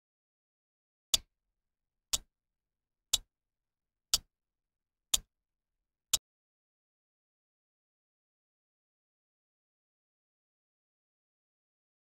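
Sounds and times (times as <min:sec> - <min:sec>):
clock-like timer ticks: 0:01.1 - 0:01.3, 0:02.1 - 0:02.3, 0:03.1 - 0:03.3, 0:05.1 - 0:05.3.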